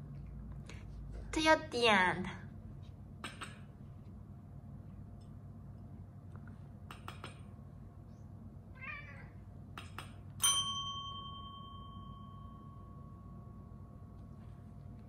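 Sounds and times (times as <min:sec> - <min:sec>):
cat meowing: 0:08.7 - 0:09.4
desk call bell ringing: 0:10.4 - 0:14.0.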